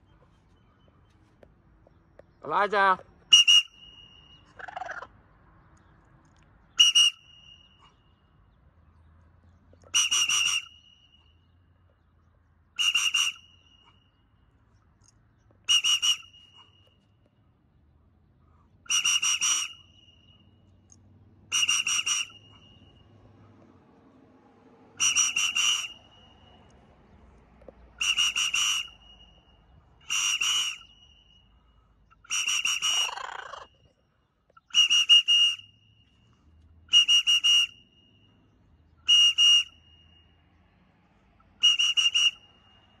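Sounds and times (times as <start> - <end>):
handheld whistle blasts: 3.3 - 4.6, 6.8 - 8.2, 9.9 - 11.5, 12.8 - 14.2, 15.6 - 17.0, 18.9 - 20.6, 21.5 - 23.2, 25.0 - 26.7, 28.0 - 33.2, 34.6 - 38.4, 39.0 - 40.4, 41.6 - 43.0.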